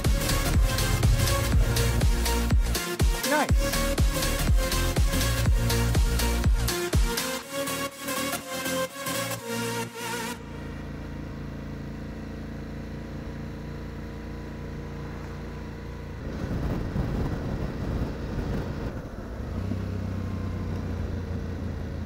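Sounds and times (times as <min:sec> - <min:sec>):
motorcycle engine running: 0:00.0 - 0:07.4, 0:10.0 - 0:22.0
wind rush on microphone: 0:16.2 - 0:19.8.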